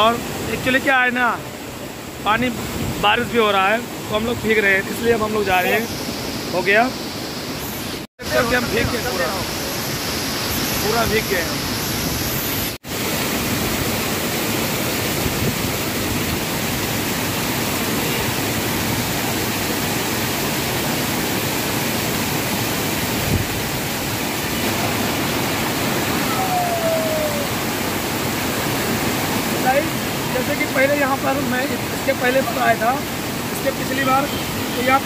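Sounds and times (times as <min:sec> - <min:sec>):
waterfall rushing: 0:00.0 - 0:35.0
faint falling whistle: 0:26.2 - 0:27.5.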